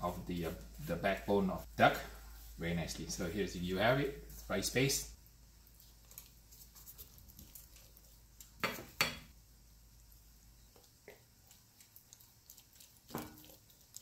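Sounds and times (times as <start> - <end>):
spoon working paste in bowl: 10.8 - 14.0.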